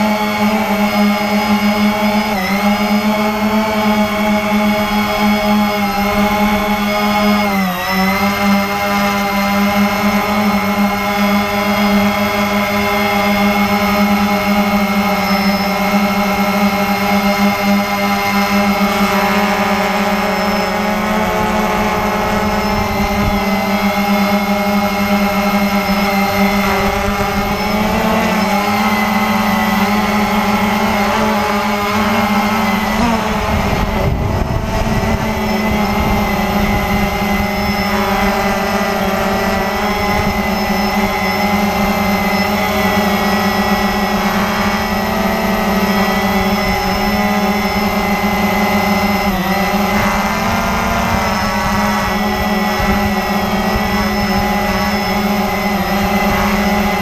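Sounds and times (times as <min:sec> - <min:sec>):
drone motors whining: 0:00.0 - 0:57.0
wind buffeting: 0:20.5 - 0:57.0.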